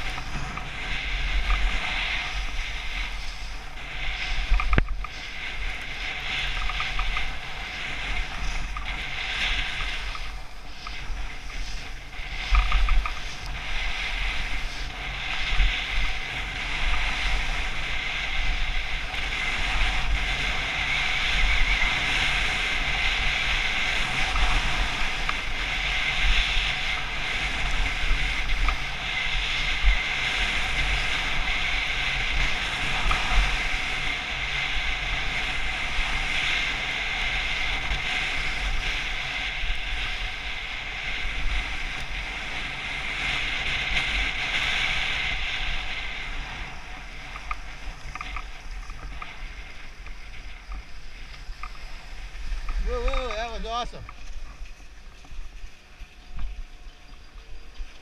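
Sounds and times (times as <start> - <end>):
skis carving on snow: 0.0 - 58.0
wind rushing over microphone: 0.0 - 58.0.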